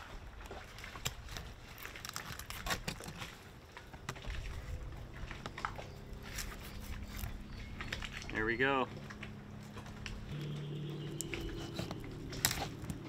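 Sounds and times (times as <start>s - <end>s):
low outdoor rumble: 3.4s - 13.0s.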